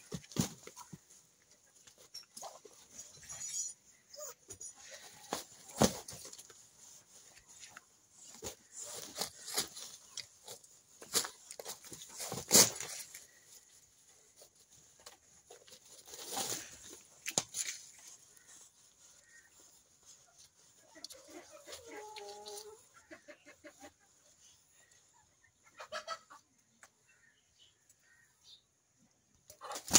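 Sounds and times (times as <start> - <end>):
wing flaps and scuffling in leaves: 4.8 - 22.7.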